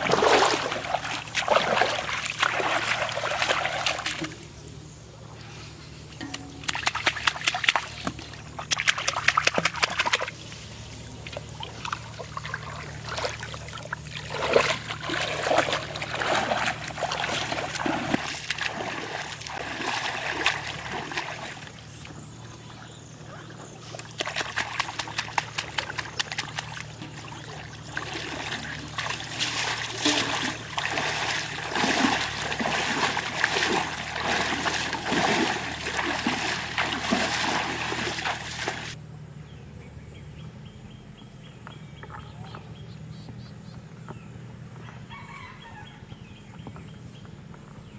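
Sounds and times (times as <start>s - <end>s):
hands splashing water: 0.0s - 4.4s, 6.2s - 10.6s, 11.2s - 22.1s, 23.9s - 39.0s
legs wading through water: 0.0s - 4.8s, 5.4s - 39.0s.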